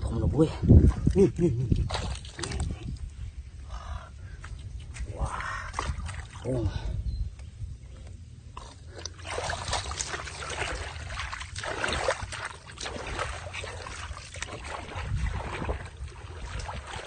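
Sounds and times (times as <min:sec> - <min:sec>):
splashing through muddy water: 0:00.7 - 0:03.1, 0:04.3 - 0:06.8, 0:08.5 - 0:17.0.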